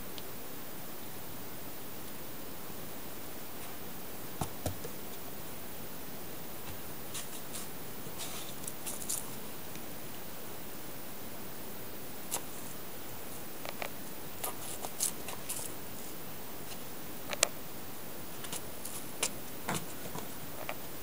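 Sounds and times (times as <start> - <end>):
steady hiss: 0.0 - 21.0
kitten paws tapping on floor: 6.7 - 9.4.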